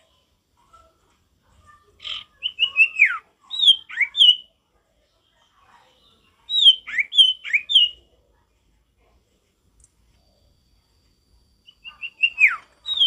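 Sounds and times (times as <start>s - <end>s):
bird whistling descending notes: 11.7s - 13.0s.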